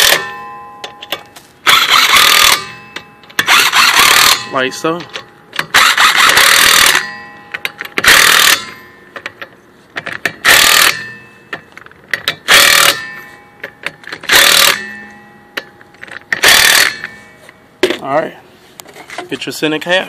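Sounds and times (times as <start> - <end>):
impact wrench tightening nuts: 0.0 - 4.4, 5.0 - 13.0, 13.6 - 14.8, 16.0 - 17.1.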